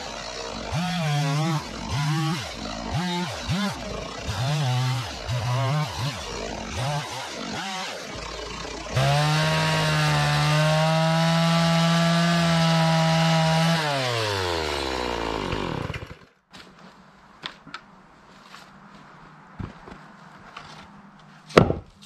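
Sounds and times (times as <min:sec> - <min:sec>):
chainsaw revving and cutting wood: 0:00.0 - 0:16.4.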